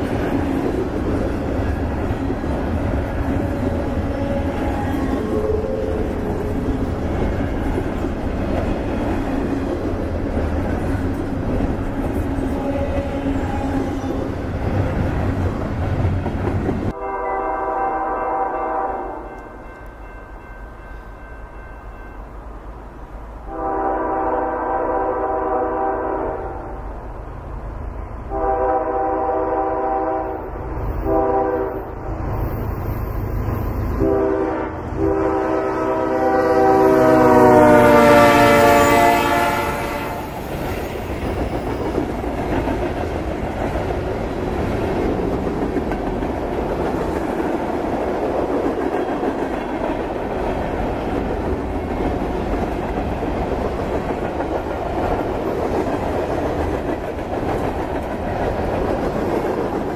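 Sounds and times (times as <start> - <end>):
locomotive air horn blasts: 16.9 - 19.4, 23.5 - 26.8, 28.3 - 32.0, 34.0 - 40.4.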